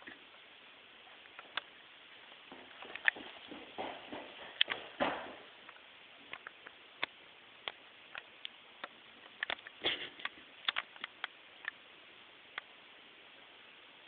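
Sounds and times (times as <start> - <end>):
sharp clicks and taps: 2.7 - 3.3, 5.7 - 11.8.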